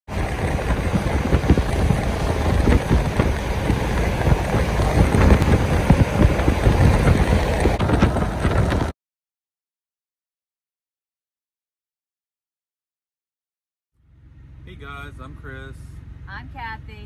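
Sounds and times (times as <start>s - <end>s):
road noise: 0.0s - 8.9s, 14.0s - 17.0s
wind buffeting microphone: 0.1s - 9.0s.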